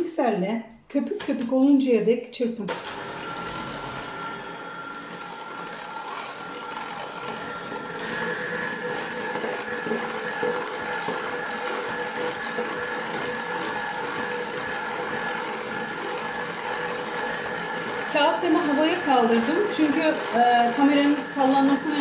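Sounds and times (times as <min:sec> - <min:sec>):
electric hand mixer whining: 0:02.7 - 0:22.0
beaters whipping in a steel bowl: 0:05.2 - 0:22.0.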